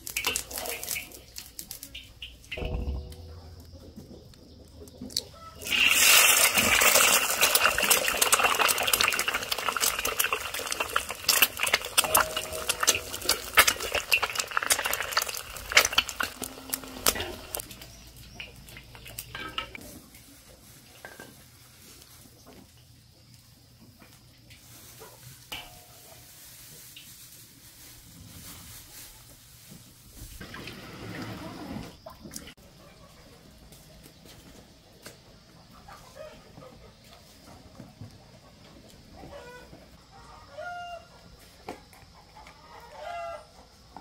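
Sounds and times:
eggs sizzling in hot oil: 0.0 - 2.6, 5.4 - 19.8.

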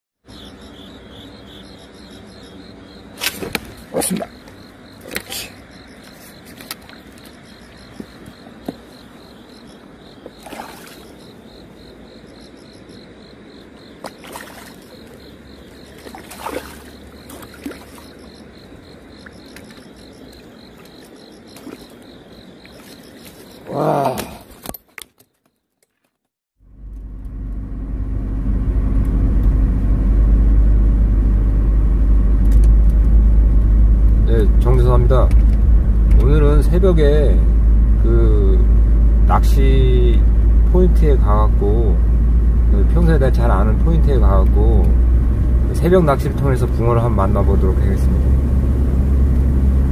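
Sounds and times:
car road rumble from inside: 26.6 - 49.9.

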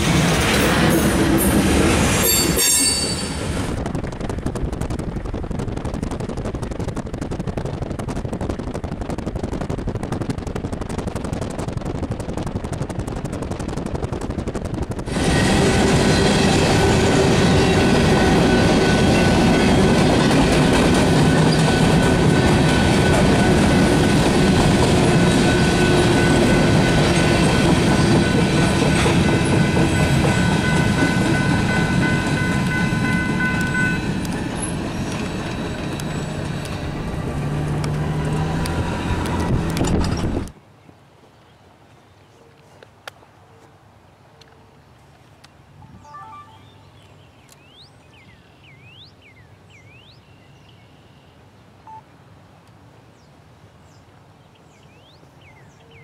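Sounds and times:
distant diesel locomotives rumbling: 0.0 - 6.2, 14.5 - 40.5
train wheels rolling on rails: 0.0 - 40.6
wind noise: 0.0 - 40.6.

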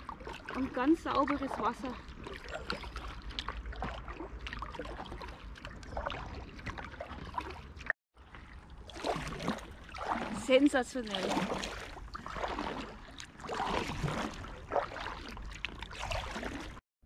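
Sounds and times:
water dripping off paddle: 0.0 - 16.7
paddle dipping into water: 0.0 - 16.8.

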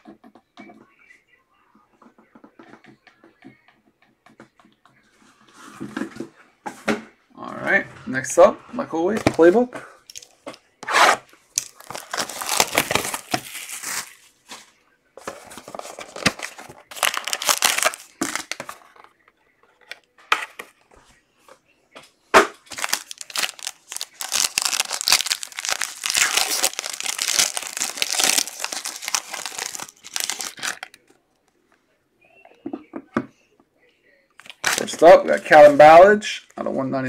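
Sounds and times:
plastic shrink-wrap tearing and crinkling: 11.5 - 14.4, 15.9 - 18.6, 22.6 - 31.0, 34.5 - 35.1.

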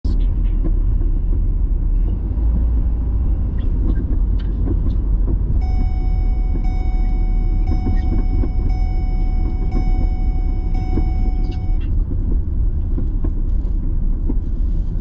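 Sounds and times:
car engine and road noise: 0.0 - 15.0
steady high-pitched tone: 5.6 - 11.8.

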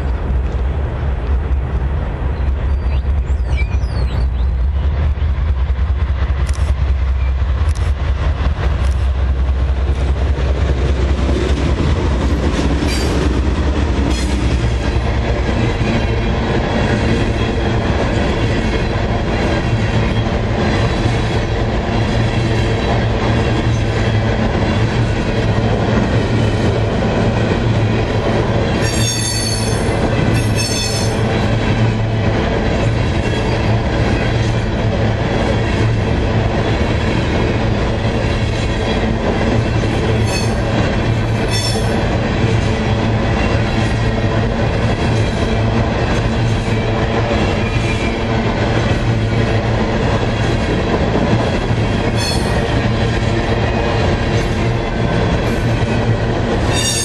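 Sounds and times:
diesel locomotives rumbling: 0.0 - 57.0
train wheel clatter: 0.0 - 57.0
high-pitched wheel squeals: 2.7 - 4.4, 28.8 - 31.1, 56.7 - 57.0.

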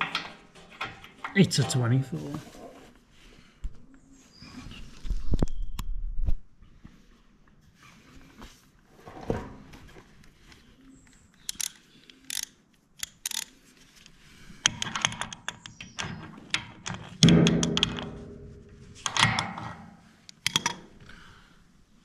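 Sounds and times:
metallic clank: 17.2 - 19.8.

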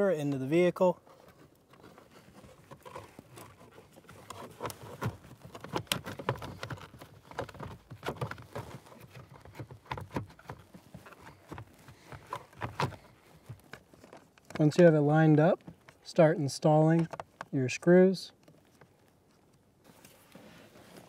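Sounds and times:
plastic clicking and rattling: 2.6 - 14.8.

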